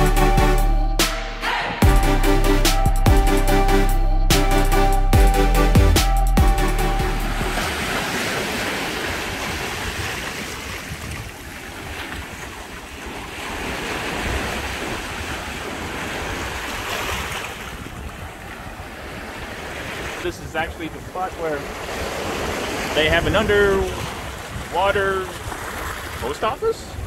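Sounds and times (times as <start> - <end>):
background music: 0.0 - 7.6
wind buffeting microphone: 7.4 - 27.0
waves on pebbly shore: 7.5 - 27.0.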